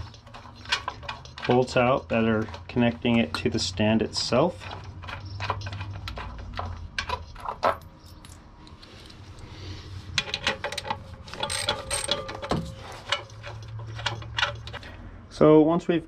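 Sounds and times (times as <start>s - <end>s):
small metal clinks: 7.0s - 9.2s, 10.2s - 15.0s.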